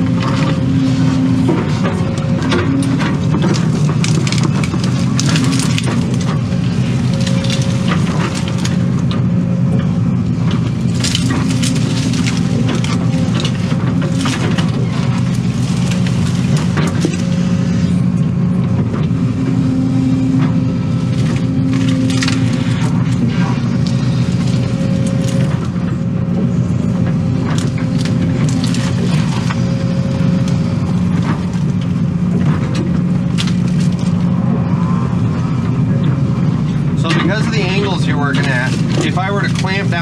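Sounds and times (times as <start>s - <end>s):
cracks and snaps of digging: 0.0s - 9.3s, 10.4s - 17.7s, 20.2s - 35.0s
diesel engine running: 0.0s - 40.0s.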